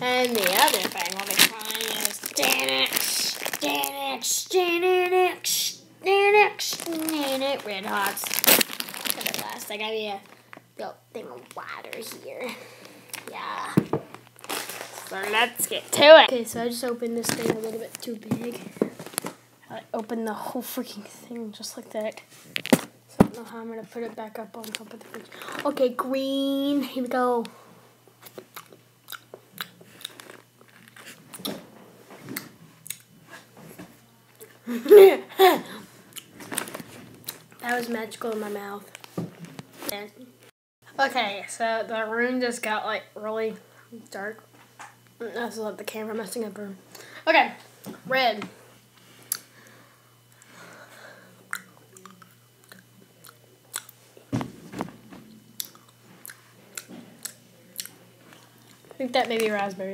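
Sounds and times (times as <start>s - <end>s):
person chewing candy: 0.0s - 3.8s, 28.2s - 31.5s, 32.4s - 33.1s, 36.1s - 37.6s, 51.4s - 54.0s, 55.6s - 58.9s.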